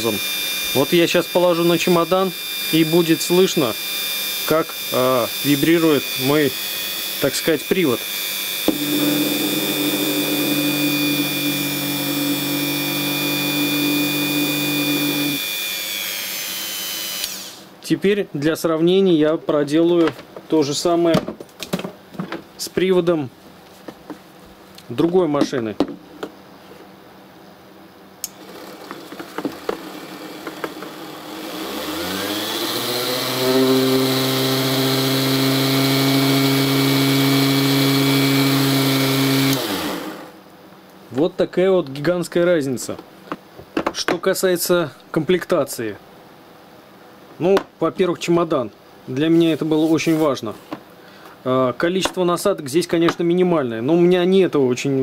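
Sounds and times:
rotary tool motor whine: 0.0 - 17.6, 28.3 - 40.3
handpiece buzzing on plastic case: 8.0 - 17.5.

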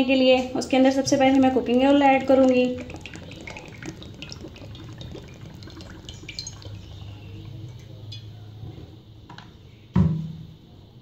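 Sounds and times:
low steady hum: 0.0 - 9.9
oil pouring into a pan: 1.0 - 7.9
small drip ticks: 1.0 - 8.0.

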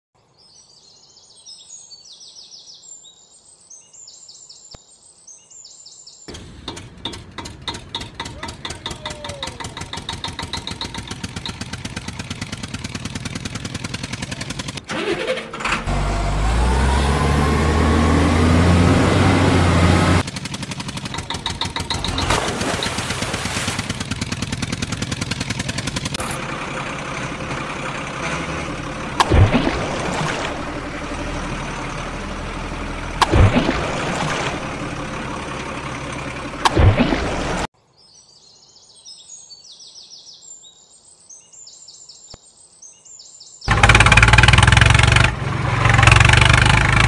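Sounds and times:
tractor engine chugging: 6.3 - 16.5, 19.4 - 29.2, 34.6 - 36.7, 43.7 - 47.0.

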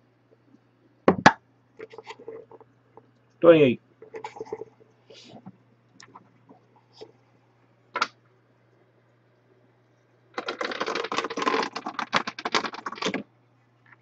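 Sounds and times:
puck clicking off pegs: 10.4 - 13.2.

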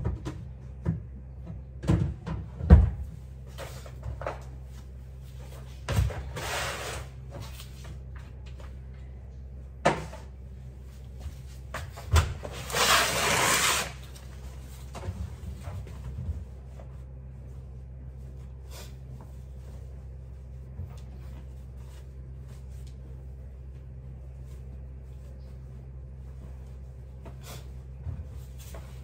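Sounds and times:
steady low hum: 0.0 - 29.0
clothes and plastic basket rustling: 14.0 - 29.0.

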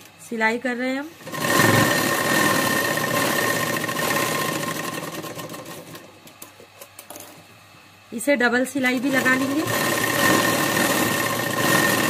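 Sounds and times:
electric sewing machine running: 1.2 - 6.1, 8.8 - 12.0.

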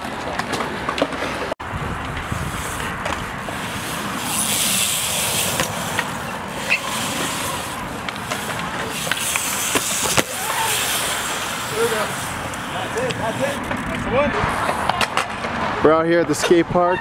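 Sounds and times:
bike clicks and knocks: 0.0 - 15.6
bike tyres rolling on concrete: 0.0 - 16.6
wind on microphone: 1.6 - 8.0.

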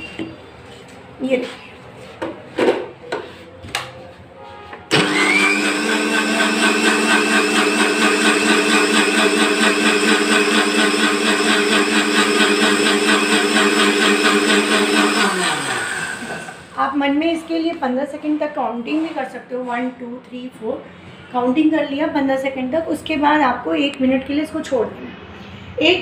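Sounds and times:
electric mixer grinder blending: 4.9 - 16.8.

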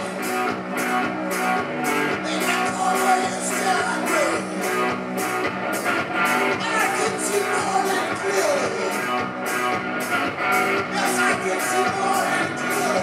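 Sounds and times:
drums: 0.0 - 13.0
guitar: 0.0 - 13.0
man singing: 2.1 - 4.6, 6.5 - 9.2, 10.8 - 13.0.

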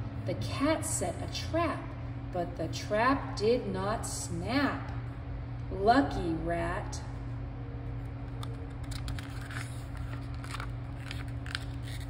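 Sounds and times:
steady low hum: 0.0 - 12.0
book pages rustling and turning: 8.2 - 12.0.

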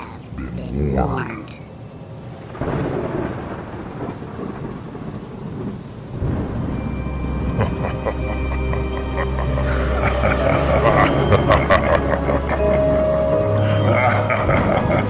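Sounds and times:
steady rain: 0.0 - 15.0
thunderclap rumbling: 2.2 - 15.0
low drone with held tones: 6.6 - 15.0.

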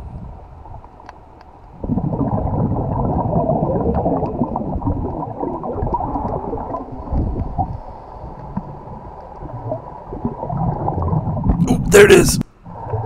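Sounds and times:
breath bubbling underwater: 1.8 - 7.9, 8.7 - 11.8.

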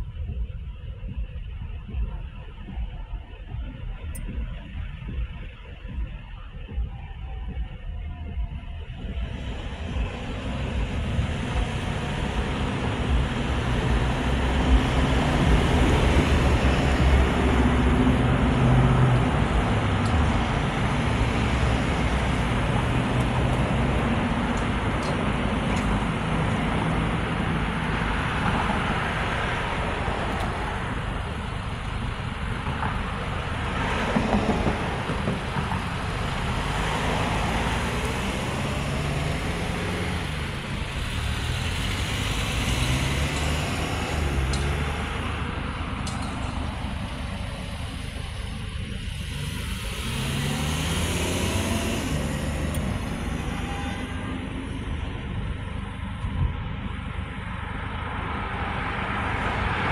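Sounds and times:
cars accelerating: 0.0 - 59.9
tyres hissing on road: 33.2 - 54.9.

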